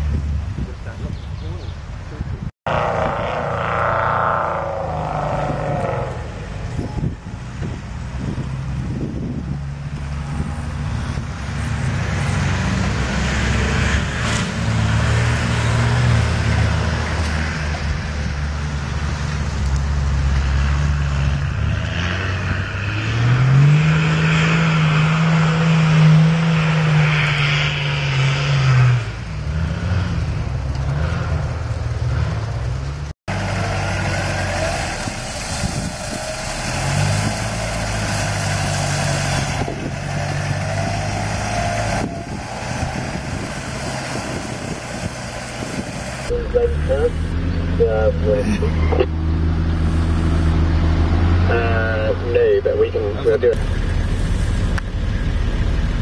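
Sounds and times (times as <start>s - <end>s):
off-road vehicle engines revving: 0.0s - 56.0s
engine idling: 51.5s - 56.0s.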